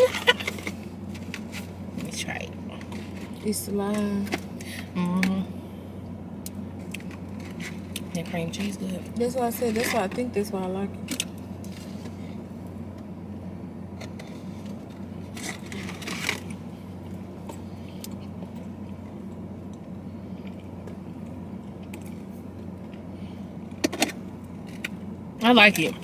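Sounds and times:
steady low hum: 0.0 - 26.0
scraping and clicking handling sounds: 14.0 - 16.6.

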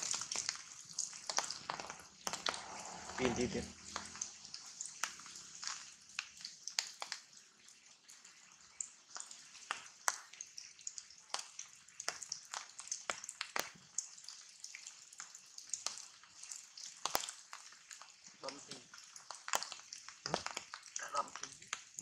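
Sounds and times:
faint steady hiss: 0.0 - 22.0
rain dripping onto leaves: 0.0 - 22.0.

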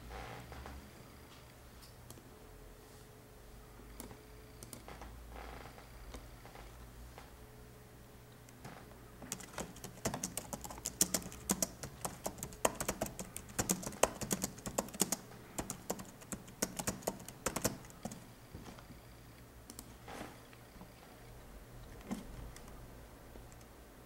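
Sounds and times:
typing on computer keyboard: 9.3 - 18.2, 22.0 - 22.8.

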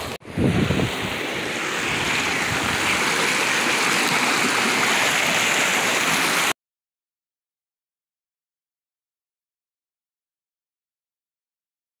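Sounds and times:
stream running over rocks: 0.0 - 6.6.

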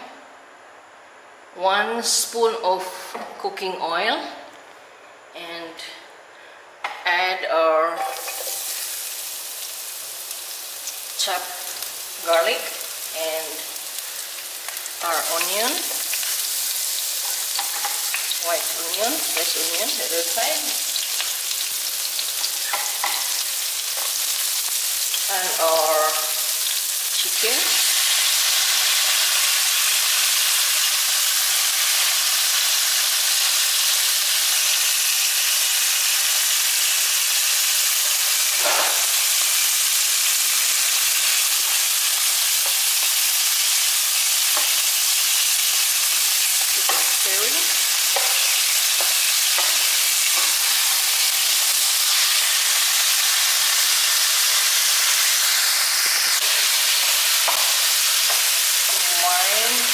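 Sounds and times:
food sizzling in hot oil: 7.1 - 59.9.

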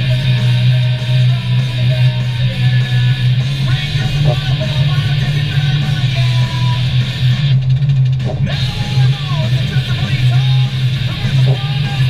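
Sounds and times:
guitar with bent notes: 0.0 - 12.0
steady low drone: 0.0 - 12.0.

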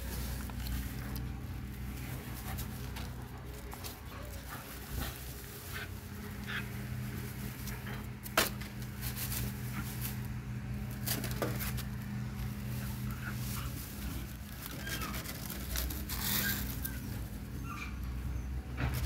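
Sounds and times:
steady low hum: 0.0 - 14.7
puppies scuffling in grass: 0.0 - 19.0.

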